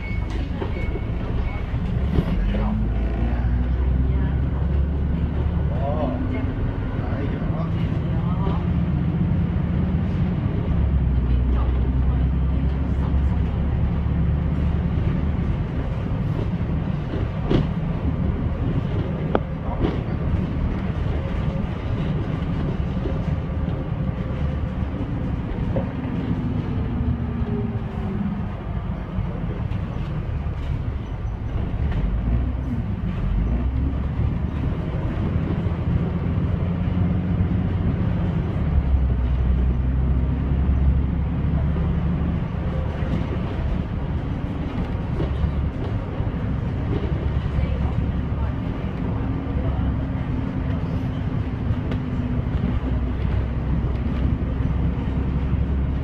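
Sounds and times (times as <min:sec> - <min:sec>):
bus engine rumble: 0:00.0 - 0:56.0
bus body knocks and rattles: 0:14.4 - 0:27.5.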